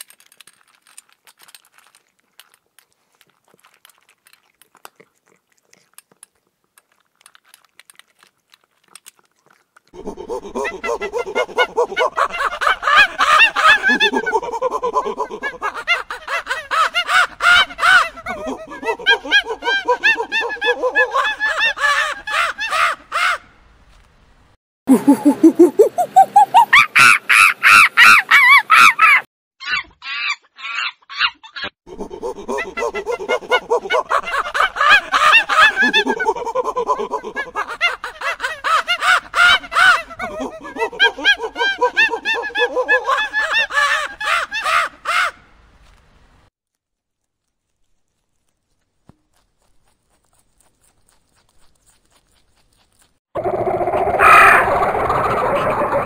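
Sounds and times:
gibbon hooting: 24.9s - 30.8s, 54.0s - 56.0s.

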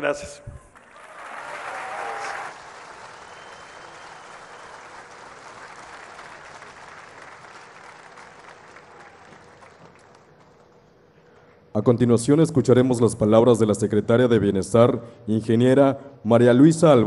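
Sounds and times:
large crowd applauding: 0.7s - 10.9s.

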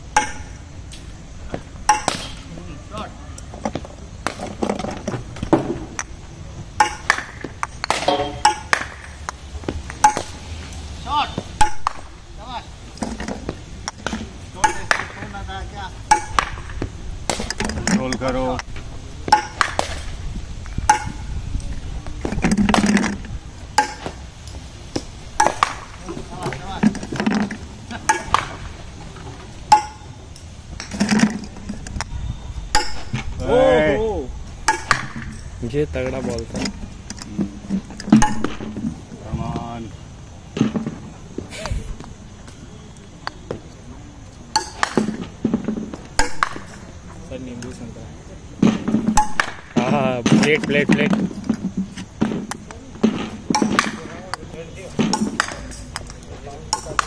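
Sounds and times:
cricket balls being struck: 0.0s - 57.0s
sharp knocks and clinks: 1.9s - 2.4s, 29.7s - 31.9s, 32.7s - 33.2s, 37.9s - 38.9s, 44.5s - 45.2s.

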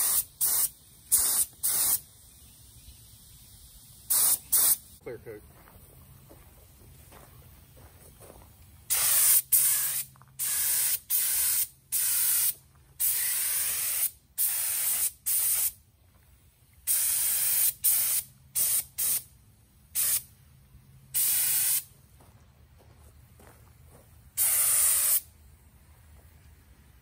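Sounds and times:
air spray gun spraying paint: 0.0s - 5.0s, 8.8s - 15.8s, 16.8s - 20.3s, 21.1s - 21.9s, 24.3s - 25.4s.

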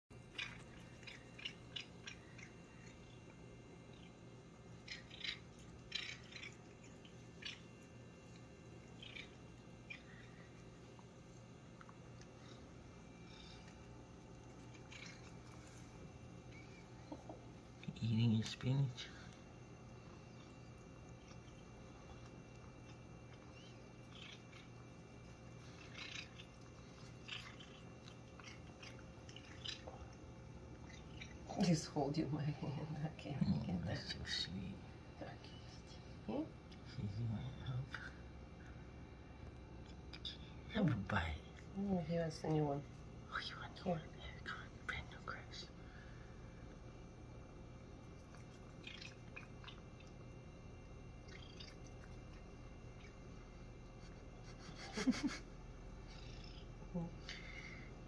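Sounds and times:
cat chewing grass: 0.1s - 31.9s, 46.0s - 54.8s.

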